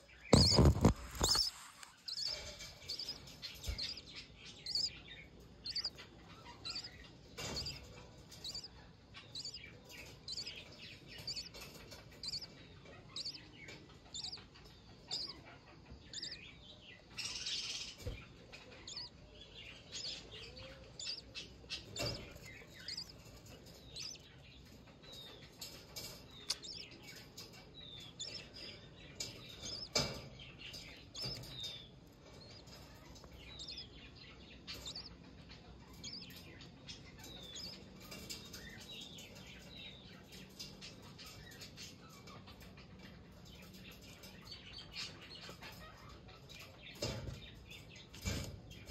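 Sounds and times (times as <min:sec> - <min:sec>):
chicks giving high begging chirps: 0:00.0 - 0:48.9
sharp knocks: 0:00.3 - 0:01.5.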